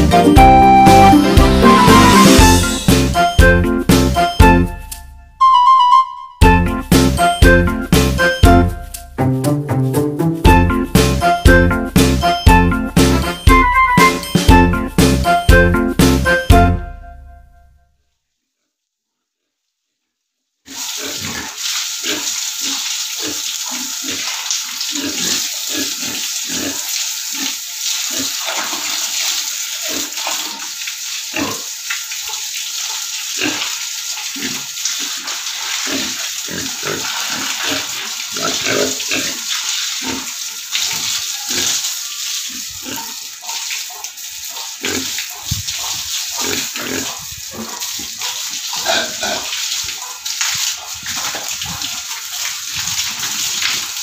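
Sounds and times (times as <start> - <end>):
pigs grunting: 20.7 - 29.0, 29.8 - 30.7, 31.3 - 31.7, 33.3 - 41.9, 42.5 - 50.2
hose spraying water on concrete: 20.7 - 54.0.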